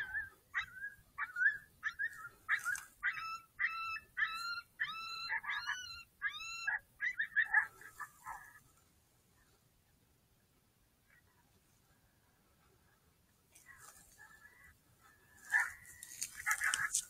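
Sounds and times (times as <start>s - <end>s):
coyote yips and whines: 0.0s - 8.6s, 13.6s - 17.0s.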